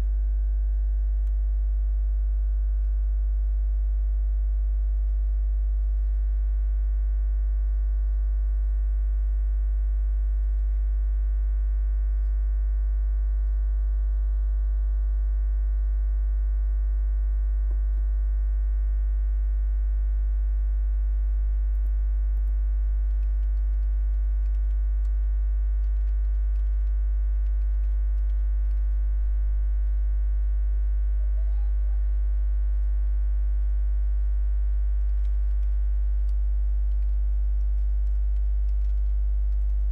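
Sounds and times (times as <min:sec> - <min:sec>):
electrical mains hum: 0:00.0 - 0:39.9
faint clicks: 0:21.7 - 0:25.2, 0:34.9 - 0:39.9.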